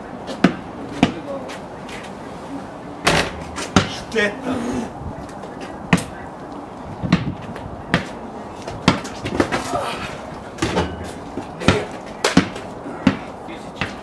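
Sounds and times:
basketball bouncing: 0:03.1 - 0:04.1, 0:08.8 - 0:09.5, 0:10.6 - 0:14.0.

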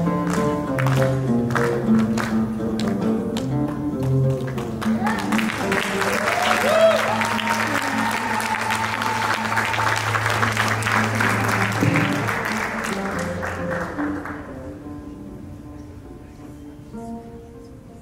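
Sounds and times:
oud playing: 0:00.0 - 0:06.0
audience applauding and cheering: 0:00.0 - 0:14.8.

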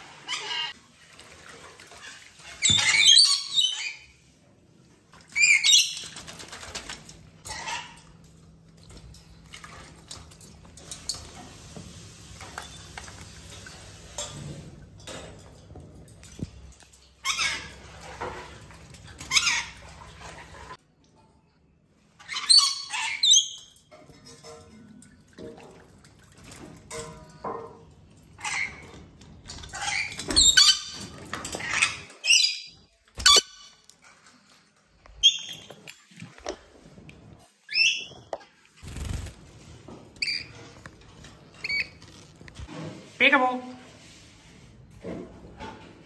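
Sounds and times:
bird flapping and shaking wings: 0:06.0 - 0:07.3, 0:38.8 - 0:39.8.

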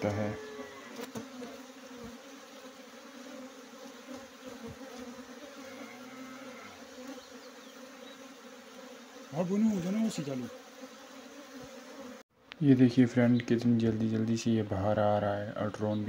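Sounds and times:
single bee flying past: 0:00.0 - 0:12.3
bee swarm buzzing: 0:00.0 - 0:13.8.

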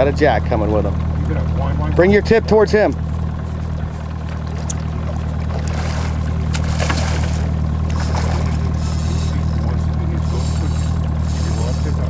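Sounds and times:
boat engine idling: 0:00.0 - 0:12.0
water splashing: 0:03.3 - 0:12.0.

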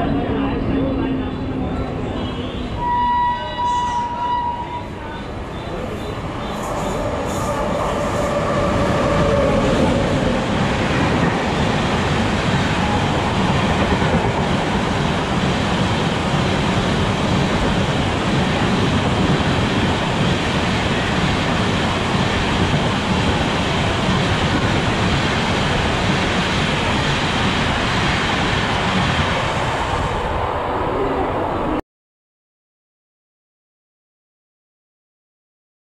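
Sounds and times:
train wheels rushing on rails: 0:03.8 - 0:31.7.

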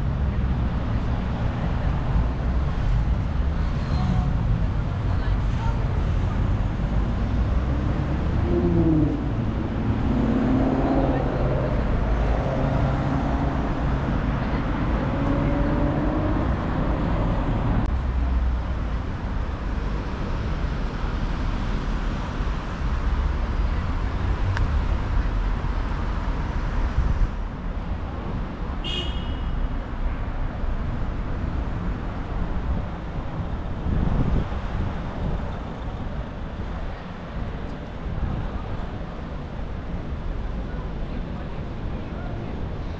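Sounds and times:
traffic rumble: 0:00.0 - 0:42.9.

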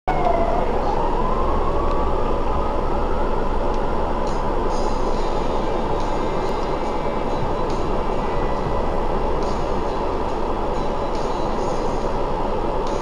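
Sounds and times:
bus engine rumble: 0:00.1 - 0:13.0
whine climbing in pitch: 0:00.1 - 0:13.0.

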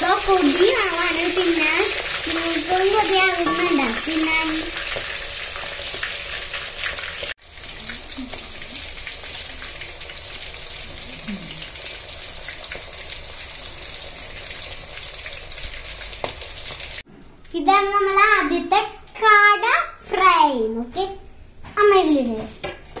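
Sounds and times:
meat deep-frying in bubbling oil: 0:00.0 - 0:17.0.

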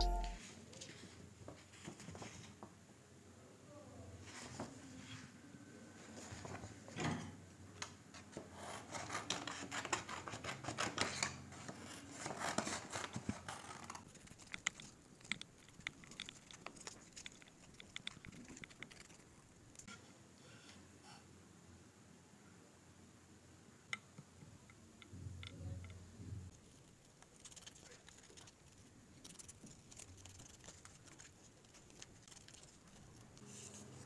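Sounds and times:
paper rustling and crackling: 0:26.7 - 0:34.0
scissors snipping paper: 0:27.2 - 0:33.5.

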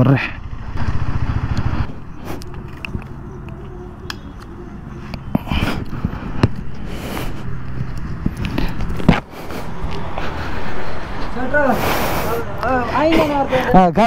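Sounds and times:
motorcycle engine running: 0:00.0 - 0:11.6
sharp clicks: 0:01.5 - 0:06.8.

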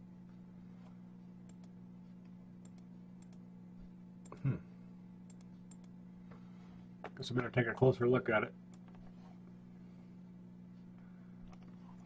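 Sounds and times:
steady low hum: 0:00.0 - 0:12.0
computer clicks: 0:01.4 - 0:01.8, 0:02.6 - 0:03.4, 0:05.3 - 0:06.0.

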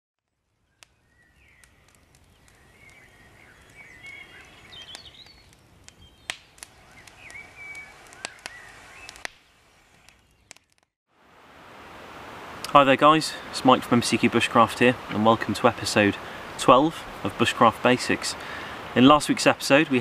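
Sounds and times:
small birds chirping: 0:00.5 - 0:10.7
sharp cracks or snaps: 0:04.9 - 0:10.9.

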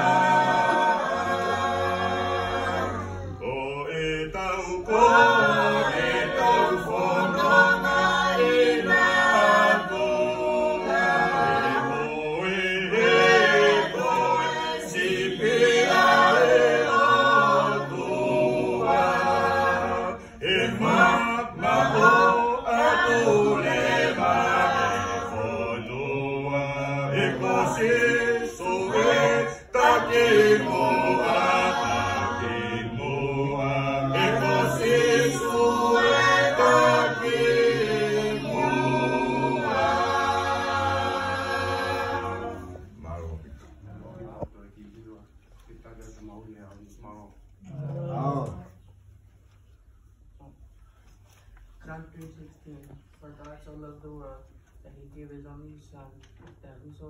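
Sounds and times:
choir singing unaccompanied: 0:00.0 - 0:43.0.

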